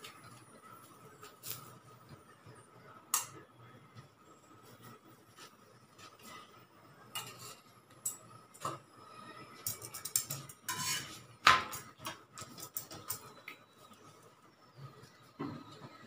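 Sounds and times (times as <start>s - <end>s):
metal spatula scraping iron griddle: 7.2s - 7.7s, 9.7s - 11.9s.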